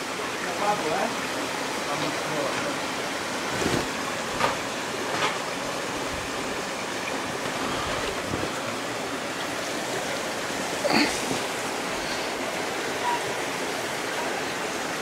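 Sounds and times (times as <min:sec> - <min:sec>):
water rushing through gorge: 0:00.0 - 0:15.0.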